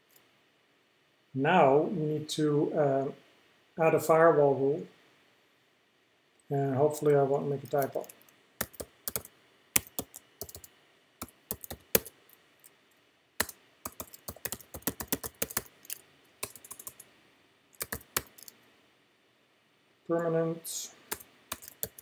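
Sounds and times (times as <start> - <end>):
computer keyboard typing: 7.6 - 12.1, 13.4 - 17.1, 17.8 - 18.6, 21.1 - 22.0.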